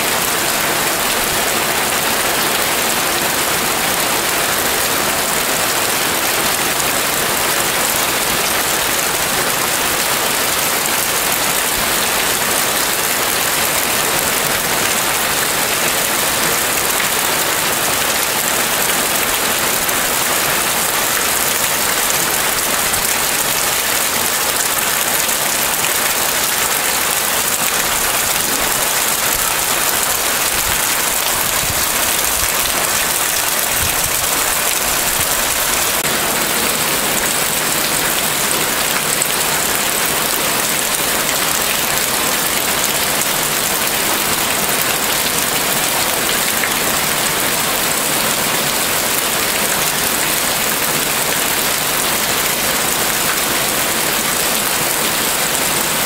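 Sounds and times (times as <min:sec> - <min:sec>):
heavy rain on leaves: 0:00.0 - 0:56.0.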